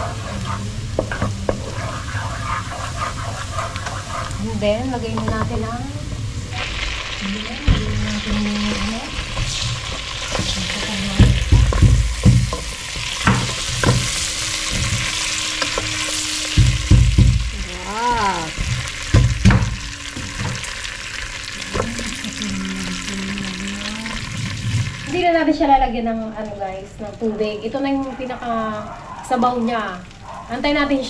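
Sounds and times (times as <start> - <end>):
food sizzling in butter: 0.0 - 31.0
utensil knocking against pan: 11.2 - 14.1, 16.6 - 20.6.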